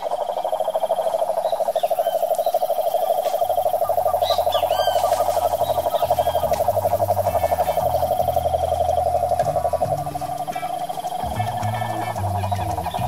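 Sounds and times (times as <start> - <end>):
faint bird chirps: 0.0 - 13.0
toad trilling: 0.0 - 13.0.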